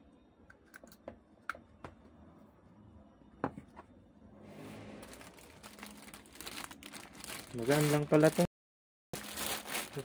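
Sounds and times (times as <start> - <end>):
plastic wrapping rustling: 5.0 - 8.5, 9.2 - 10.0.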